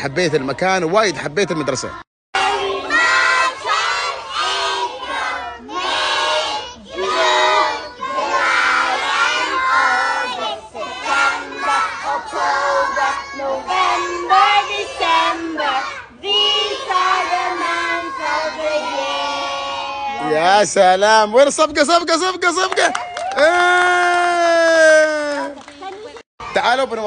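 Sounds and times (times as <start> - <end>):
children singing in unison: 2.4 - 20.1.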